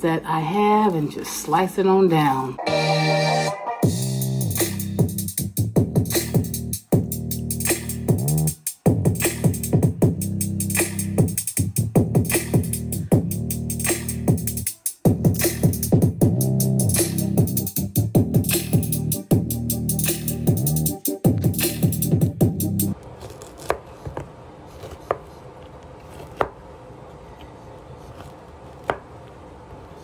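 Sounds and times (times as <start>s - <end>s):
electronic music with drum-machine beat: 2.6s - 22.9s.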